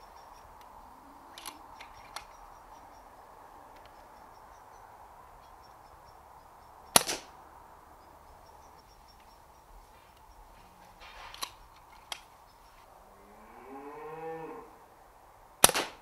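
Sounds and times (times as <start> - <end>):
faint clicks: 0.0 - 3.1, 3.7 - 6.2, 8.0 - 12.9
air rifle shot crack: 6.9 - 7.3, 15.6 - 16.0.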